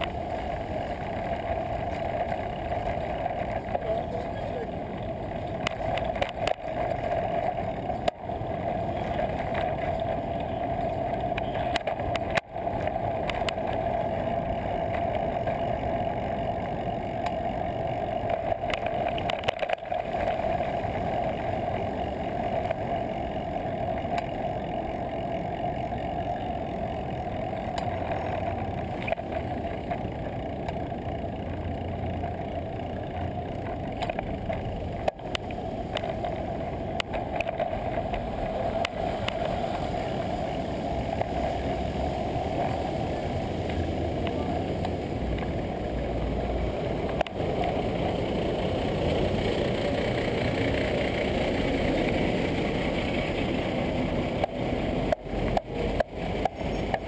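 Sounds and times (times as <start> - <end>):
constant hum: 0.0 - 57.0
wind and road noise: 0.0 - 57.0
bike knocks and clicks: 54.4 - 57.0.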